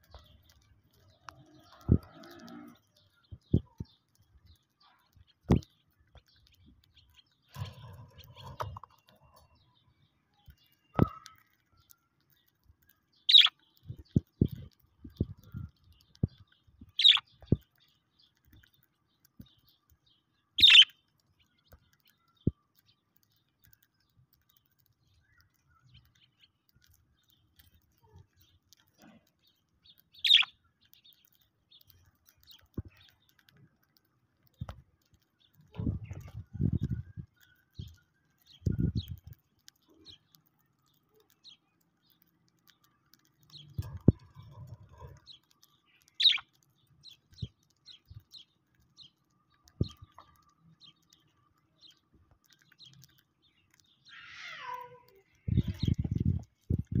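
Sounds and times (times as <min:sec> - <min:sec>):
beaks husking seed clicks: 0:00.0 - 0:57.0
budgerigars chirping: 0:13.3 - 0:13.5, 0:17.0 - 0:17.2, 0:20.6 - 0:20.9, 0:30.2 - 0:30.5, 0:46.2 - 0:46.5.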